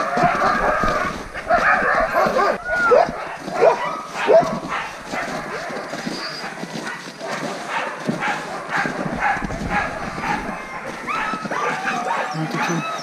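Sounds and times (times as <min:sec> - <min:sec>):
sled dogs barking and yipping: 0:00.0 - 0:13.0
dog whining: 0:10.2 - 0:13.0.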